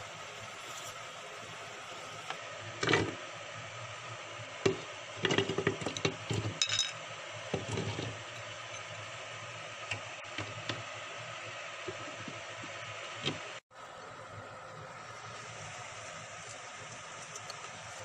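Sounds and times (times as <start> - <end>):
steady hiss: 0.0 - 2.7, 6.9 - 18.0.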